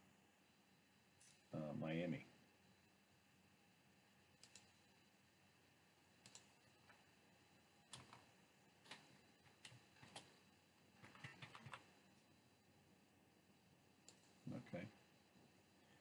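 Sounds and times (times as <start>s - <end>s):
computer mouse clicks: 4.4s - 4.8s, 6.2s - 7.0s, 7.9s - 10.4s, 11.0s - 11.9s, 14.0s - 14.4s
keyboard keystrokes: 7.9s - 10.3s, 11.0s - 11.9s.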